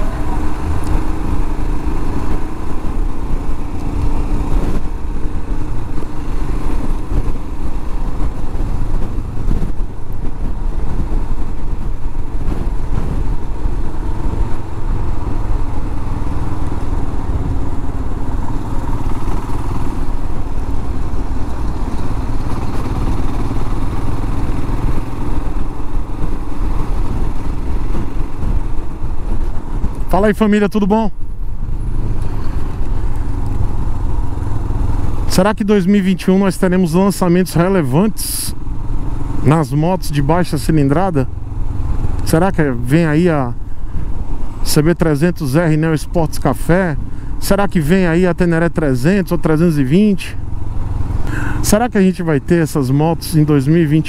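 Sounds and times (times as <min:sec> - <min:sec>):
wind rumble on microphone: 0:00.0 - 0:35.8
motorcycle engine running: 0:00.0 - 0:54.0.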